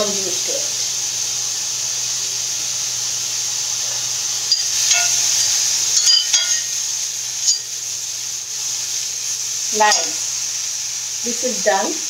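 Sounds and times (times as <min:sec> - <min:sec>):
vegetables sizzling in a pan: 0:00.0 - 0:12.0
metal spoon knocking pan: 0:06.0 - 0:06.7.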